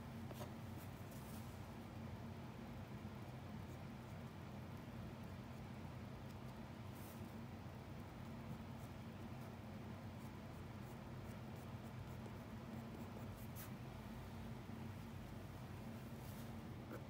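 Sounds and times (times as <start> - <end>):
low steady hum: 0.0 - 17.0
pencil scratching on paper: 10.2 - 13.8.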